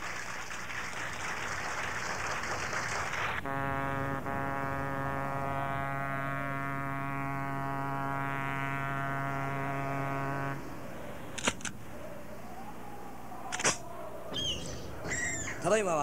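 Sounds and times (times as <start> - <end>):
low brass note held: 3.4 - 10.8
sharp clicks: 11.3 - 11.8, 13.5 - 13.8.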